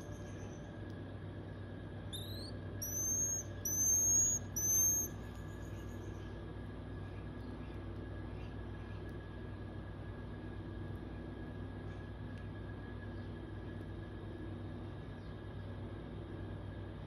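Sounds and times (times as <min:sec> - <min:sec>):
steady low hum: 0:00.0 - 0:17.0
marmoset high whistles: 0:02.1 - 0:05.2
marmoset chirp: 0:02.1 - 0:06.1.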